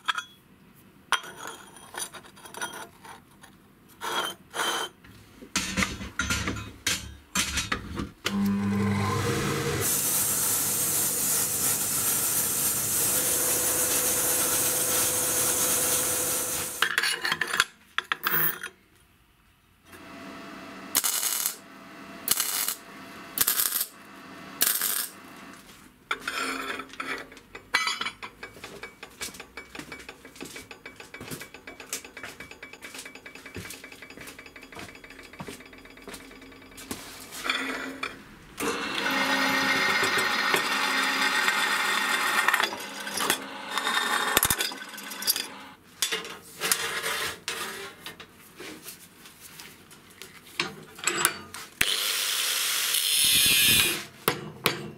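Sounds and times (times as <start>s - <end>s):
metal knocks and clinks: 5.6s - 7.8s
power tool running under load: 8.3s - 16.8s, 38.6s - 45.8s.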